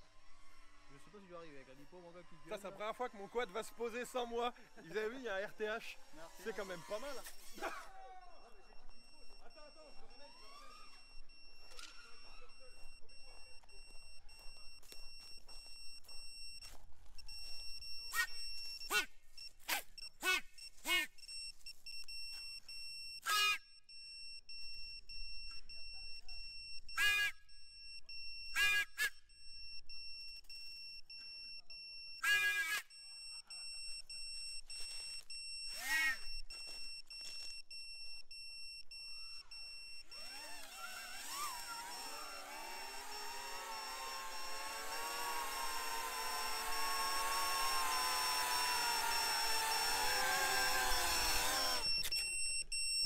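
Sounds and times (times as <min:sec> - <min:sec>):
drone motors whirring: 0:00.0 - 0:53.0
high-pitched electronic beeper tone: 0:25.6 - 0:30.4, 0:31.2 - 0:53.0.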